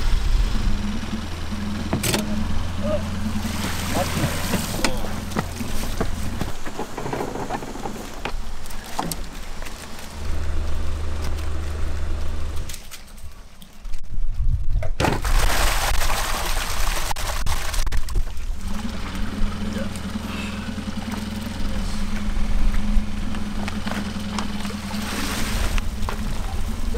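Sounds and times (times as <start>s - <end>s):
low engine hum: 0.0s - 15.0s, 16.7s - 26.9s.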